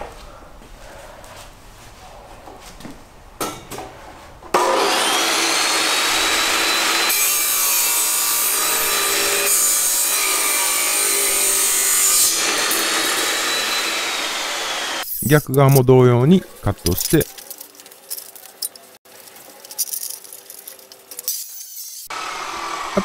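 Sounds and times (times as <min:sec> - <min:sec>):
cut-off saw grinding steel: 0:04.6 - 0:15.3, 0:21.2 - 0:23.0.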